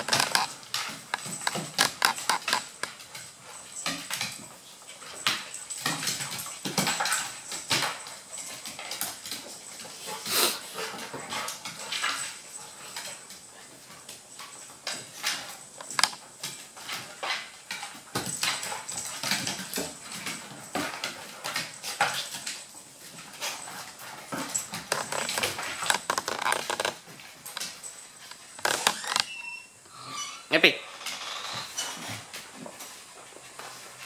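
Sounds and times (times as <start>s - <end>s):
claws clicking on wooden floor: 0.0s - 3.2s, 15.0s - 20.9s, 24.3s - 29.4s
dogs whimpering and whining: 23.4s - 32.3s.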